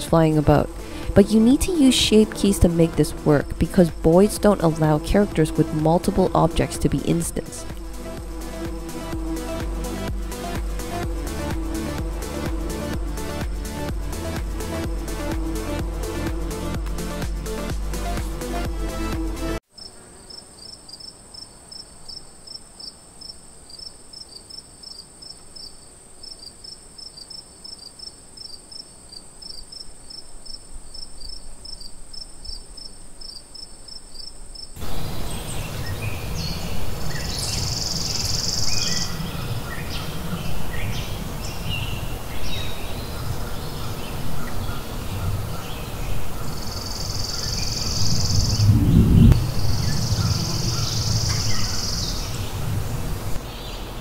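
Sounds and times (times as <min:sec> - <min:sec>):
low wind rumble: 0:00.0 - 0:18.0, 0:34.8 - 0:54.0
high insect buzzing: 0:00.0 - 0:45.0, 0:46.0 - 0:53.4
cricket chorus: 0:19.8 - 0:48.6, 0:49.4 - 0:53.9
bird calls: 0:34.2 - 0:52.7.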